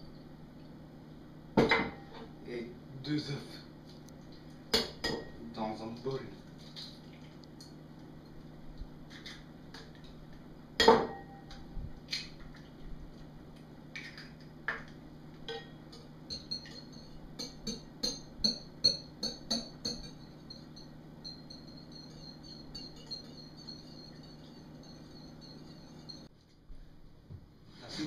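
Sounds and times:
fork beating eggs clinking: 15.5s - 26.3s.

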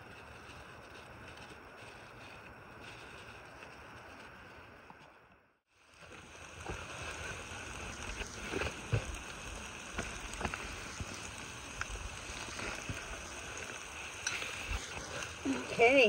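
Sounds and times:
wood fire crackling and popping: 0.0s - 16.0s
food sizzling in a pan: 5.7s - 16.0s.

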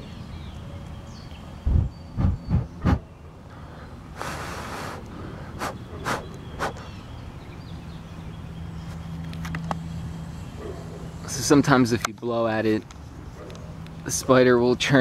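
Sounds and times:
low thumps: 1.7s - 3.1s
person blowing puffs of breath: 3.5s - 6.9s.

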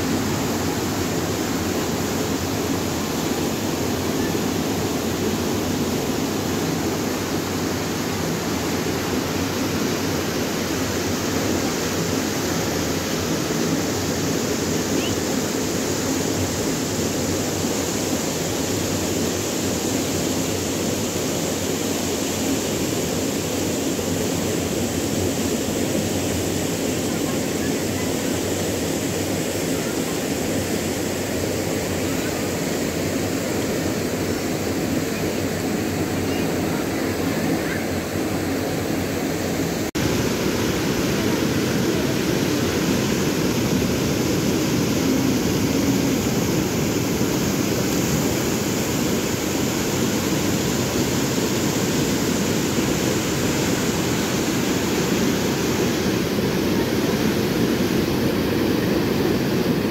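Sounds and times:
river rushing through rapids: 0.0s - 59.9s.

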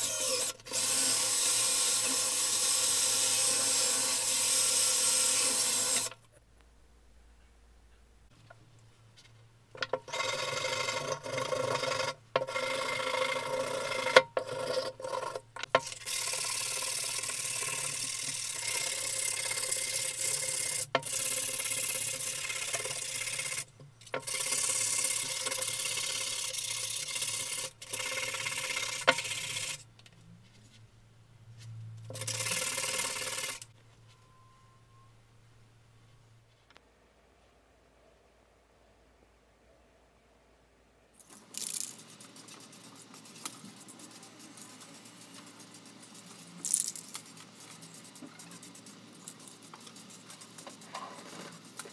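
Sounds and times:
sandpaper scratching on metal: 41.9s - 46.5s, 47.1s - 51.9s.

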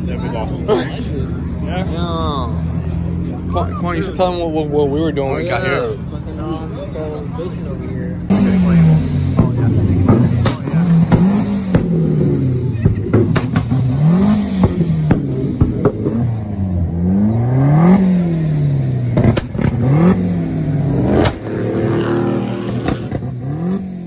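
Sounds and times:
exhaust pops and bangs: 8.3s - 16.4s, 19.1s - 19.9s, 21.1s - 23.4s
car engine revving hard: 8.3s - 24.0s.

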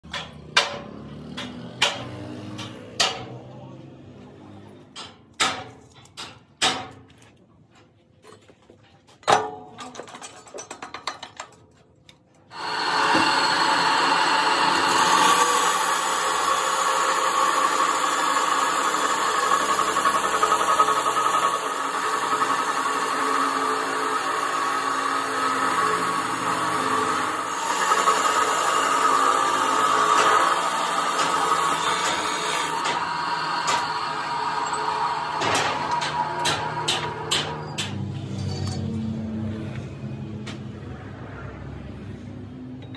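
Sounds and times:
cut-off saw grinding steel pipe: 12.5s - 38.6s.

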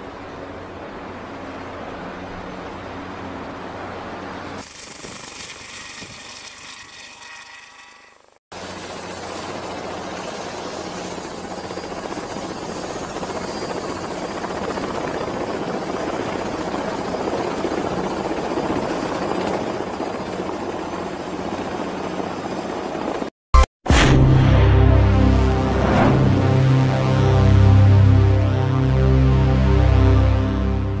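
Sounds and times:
helicopter rotor and engine noise: 0.0s - 6.4s, 8.2s - 23.3s.

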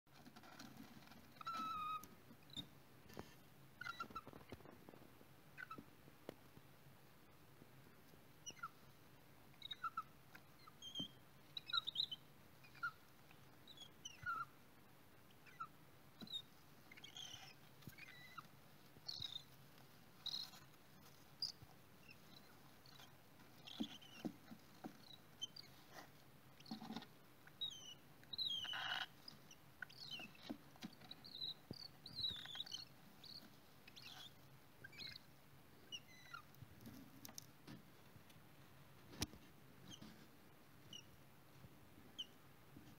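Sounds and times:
chicks squeaking and peeping: 0.4s - 2.7s, 3.8s - 4.7s, 9.6s - 14.6s, 15.3s - 35.3s.

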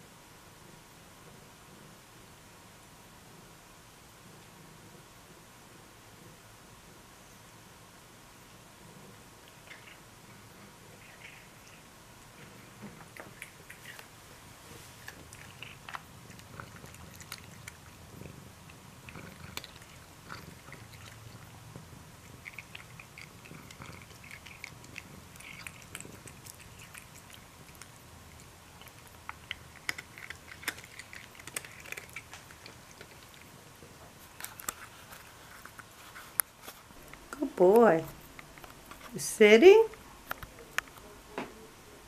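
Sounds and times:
cat purring: 0.5s - 7.8s, 8.5s - 36.4s
cat crunching dry kibble: 9.4s - 37.4s.

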